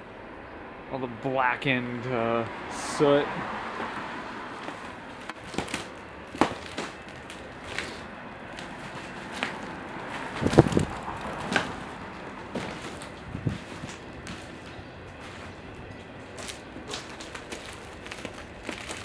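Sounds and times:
footsteps crunching over debris: 4.5s - 19.0s.

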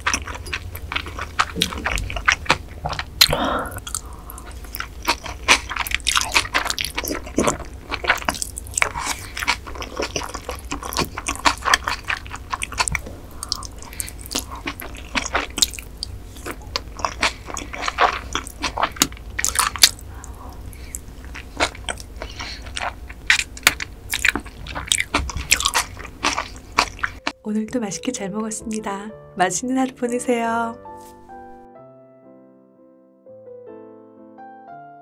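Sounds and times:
slurping and chewing noodles: 0.0s - 27.3s.

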